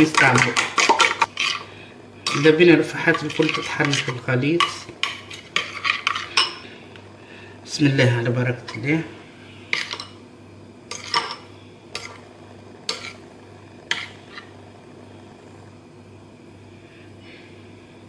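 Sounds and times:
metal spoon scraping ceramic bowl: 3.1s - 6.6s, 12.0s - 12.2s, 12.9s - 13.2s.

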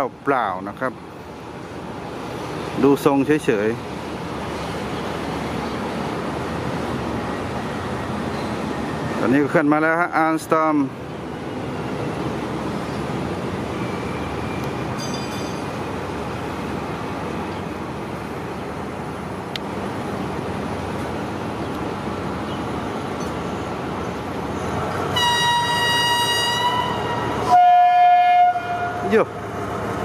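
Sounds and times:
train engine and rail rumble: 0.0s - 30.0s
locomotive horn blast: 25.1s - 29.1s.

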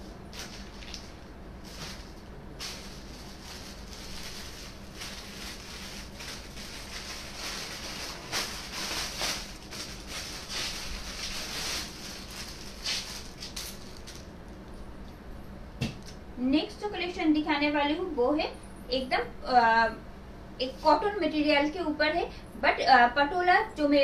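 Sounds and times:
blouse fabric rustling: 0.0s - 14.2s
steady low hum: 0.0s - 24.0s.

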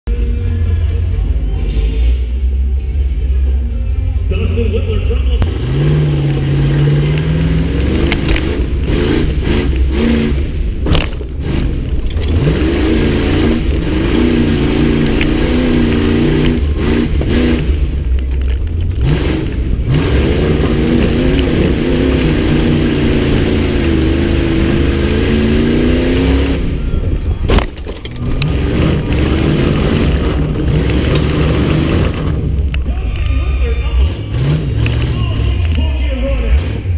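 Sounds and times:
engine revving hard: 5.4s - 18.0s, 18.8s - 26.9s, 28.2s - 32.6s, 33.8s - 36.9s
knocks and clattering: 7.0s - 26.6s, 27.4s - 32.9s.

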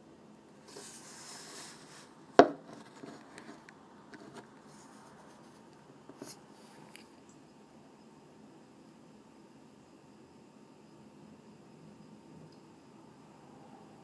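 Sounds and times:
short hiss: 0.6s - 2.2s.

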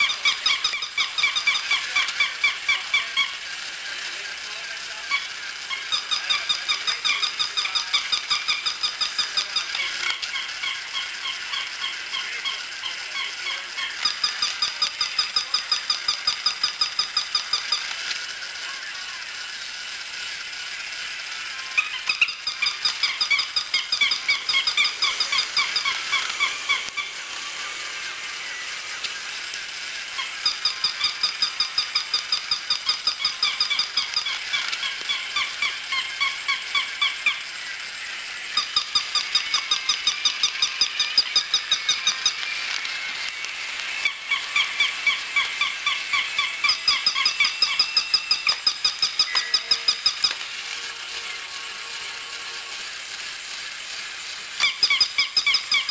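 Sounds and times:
toy dogs yapping electronic barks: 0.0s - 3.7s, 5.1s - 18.8s, 21.6s - 27.2s, 30.1s - 37.5s, 38.5s - 43.0s, 43.9s - 50.5s, 54.6s - 55.9s.

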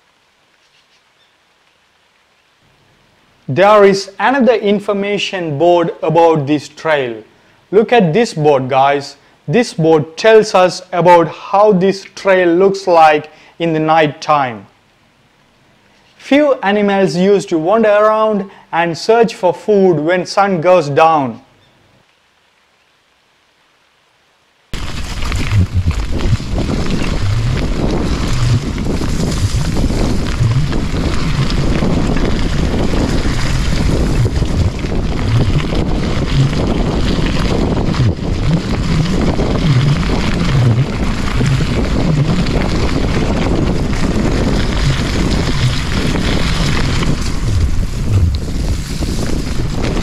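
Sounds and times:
bike rumbling over dirt: 24.8s - 50.0s
wind buffeting microphone: 24.8s - 50.0s.

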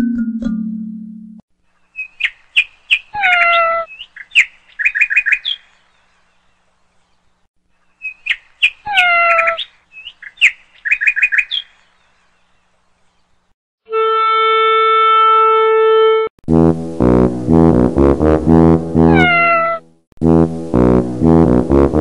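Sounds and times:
bird chirping: 1.7s - 13.5s.

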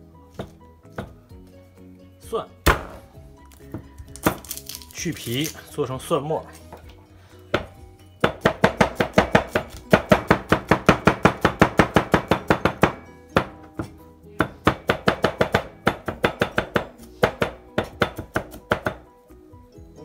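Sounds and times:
knife chopping on cutting board: 0.4s - 1.2s, 2.7s - 3.1s, 7.5s - 19.0s.

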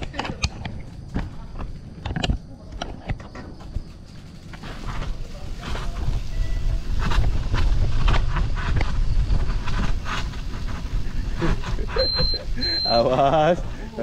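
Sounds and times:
bike clicks and knocks: 0.0s - 12.1s
bicycle rattling: 0.0s - 14.0s
wind buffeting microphone: 5.9s - 12.6s.

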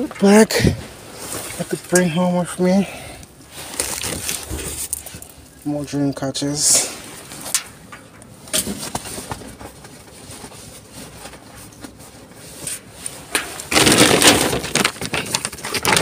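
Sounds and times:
plastic bags rustling and crinkling: 3.4s - 5.7s, 8.3s - 16.0s.

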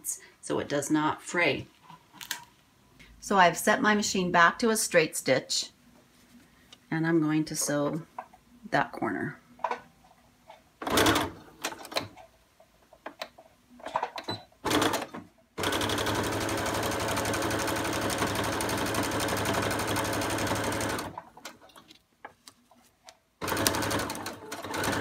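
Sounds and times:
sewing machine stitching: 23.4s - 25.0s.

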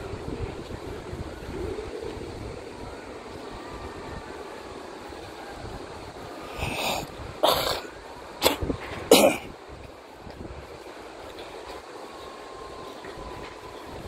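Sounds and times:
steady background hiss: 0.0s - 14.0s
person coughing: 8.4s - 9.5s.

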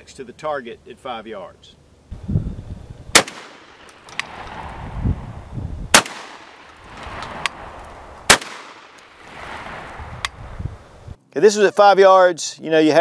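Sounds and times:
shotgun shots: 3.1s - 4.8s, 5.9s - 10.0s.

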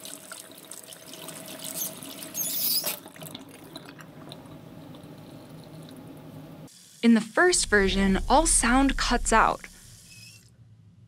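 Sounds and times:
faucet running into metal sink: 0.0s - 6.0s
tap handle squeak: 1.8s - 3.0s
low steady background: 6.6s - 11.0s.

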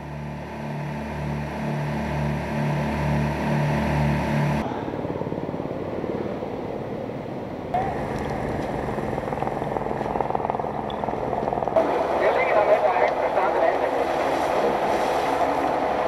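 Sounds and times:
droning motor: 0.0s - 5.5s, 7.7s - 14.4s
rapidly rattling engine: 7.8s - 11.8s.

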